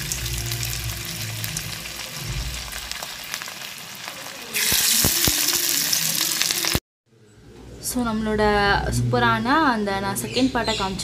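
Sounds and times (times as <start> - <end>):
food sizzling in deep oil: 0.0 - 6.8.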